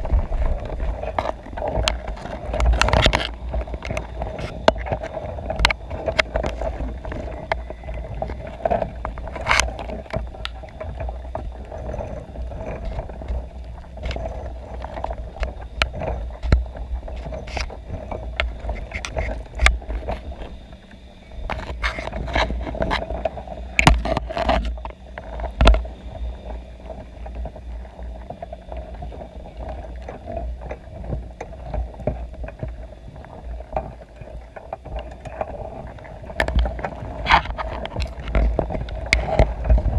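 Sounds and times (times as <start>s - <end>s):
muffled underwater rumble: 0.0s - 39.9s
sharp clicks and knocks: 21.4s - 25.9s.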